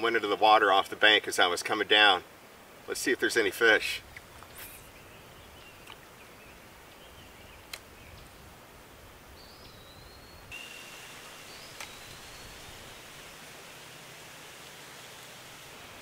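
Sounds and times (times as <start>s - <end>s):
faint steady hiss: 0.0s - 16.0s
high insect drone: 10.5s - 16.0s.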